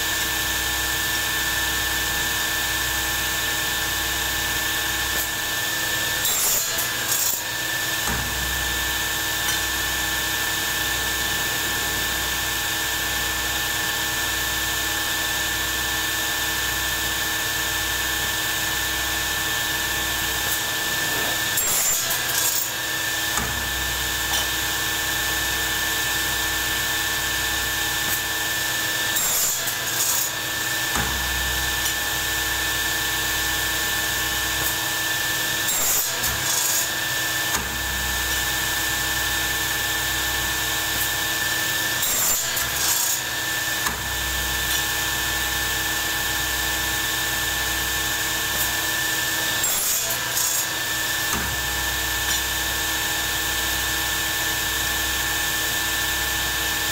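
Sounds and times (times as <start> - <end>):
workshop machine whining: 0.0 - 56.9.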